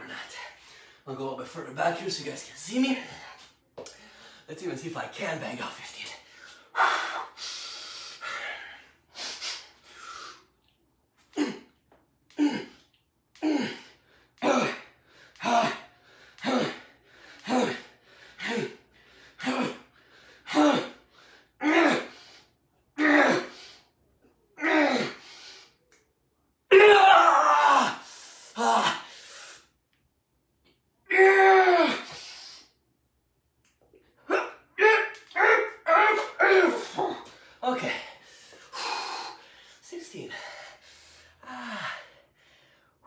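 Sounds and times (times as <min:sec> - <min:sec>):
man breathing hard: 0:00.0 - 0:01.1, 0:02.9 - 0:04.5, 0:06.0 - 0:10.6, 0:12.3 - 0:22.6, 0:24.9 - 0:25.8, 0:27.9 - 0:29.8, 0:32.0 - 0:32.8, 0:36.7 - 0:43.0.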